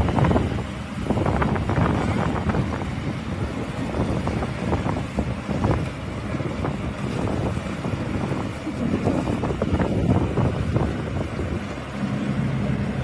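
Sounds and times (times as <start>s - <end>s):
combine harvester engine drone: 0.0s - 13.0s
wind buffeting microphone: 0.0s - 13.0s.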